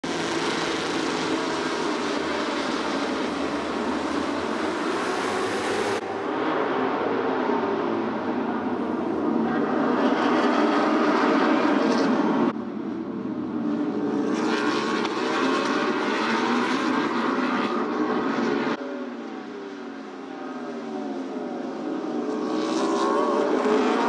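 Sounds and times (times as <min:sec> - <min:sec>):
motorcycle engines revving: 0:00.0 - 0:12.6, 0:13.6 - 0:24.0.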